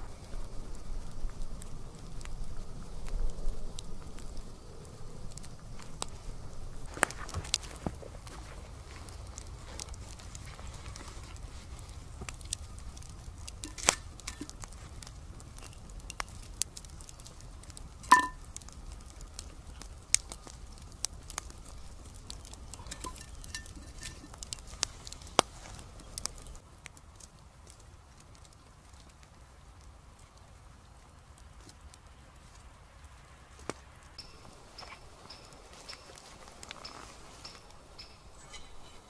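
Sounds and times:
campfire crackling and popping: 0:00.0 - 0:39.0
logs knocking on cast iron lid: 0:13.6 - 0:14.6, 0:18.1 - 0:18.4, 0:22.8 - 0:24.5.

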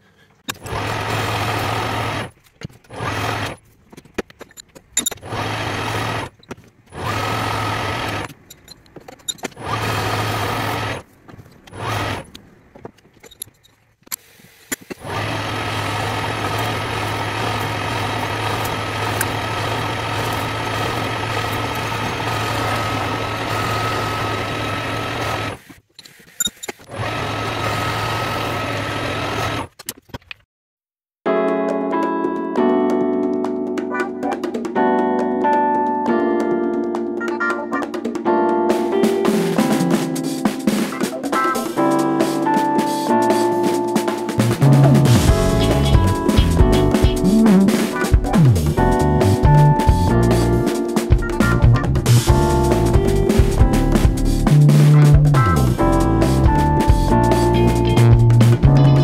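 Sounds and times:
tool cutting metal: 0:00.4 - 0:12.4, 0:14.1 - 0:29.8, 0:44.4 - 0:48.8
metal lathe motor hum: 0:06.9 - 0:08.3, 0:15.0 - 0:25.6, 0:26.9 - 0:29.7.

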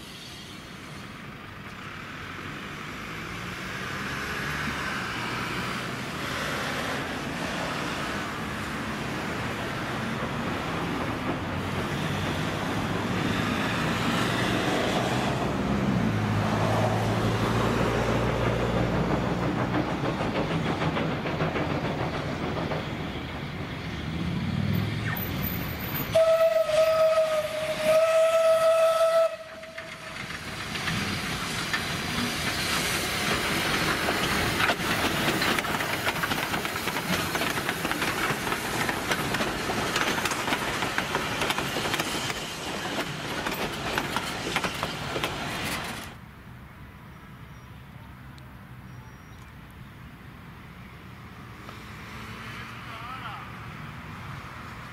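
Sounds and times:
steam locomotive running: 0:00.0 - 0:46.2
steam whistle blasts: 0:26.1 - 0:29.8.

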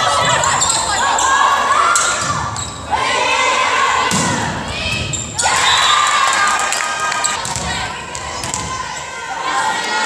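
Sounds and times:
players shouting and cheering: 0:00.0 - 0:10.0
volleyball being hit: 0:04.1 - 0:05.1.

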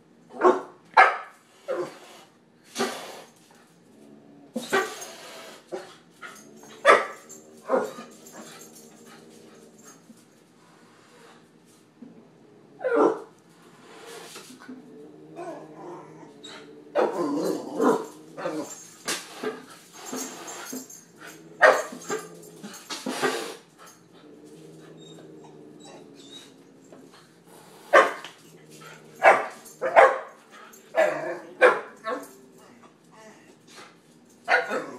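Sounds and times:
puppy barking: 0:00.4 - 0:01.3, 0:06.8 - 0:07.2, 0:21.6 - 0:21.9, 0:29.2 - 0:30.4, 0:34.5 - 0:34.9.

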